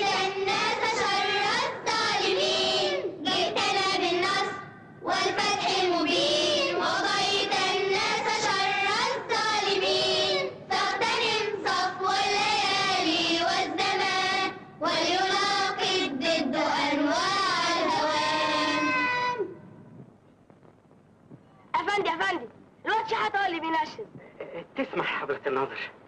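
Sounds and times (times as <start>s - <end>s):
boys singing in unison: 0.0s - 19.6s.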